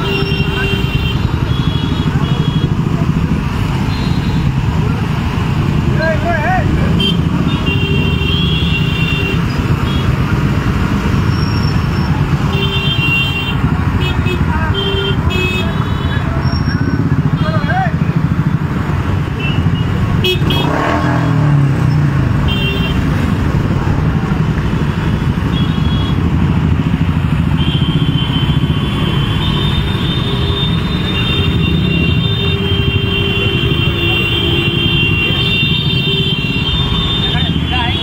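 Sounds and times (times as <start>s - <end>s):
motorcycle engines running: 0.0s - 38.0s
horn toots: 19.3s - 21.5s.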